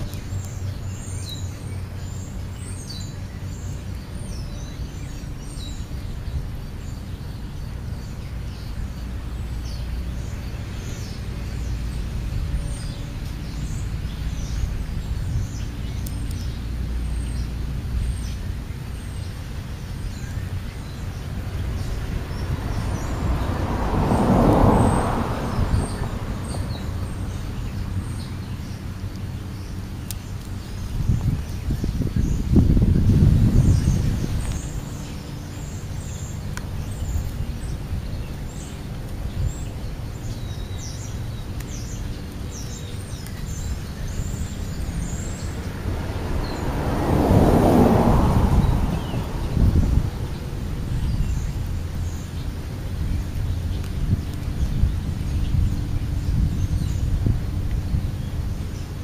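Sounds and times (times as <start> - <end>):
birds chirping: 0.0 - 59.0
steady low rumble: 0.0 - 59.0
rushing swell: 44.7 - 51.0.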